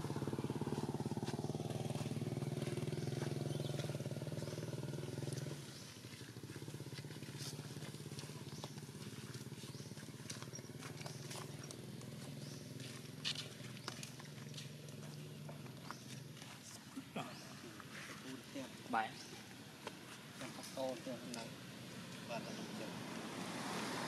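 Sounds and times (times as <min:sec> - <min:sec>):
small engine running: 0:00.0 - 0:16.5.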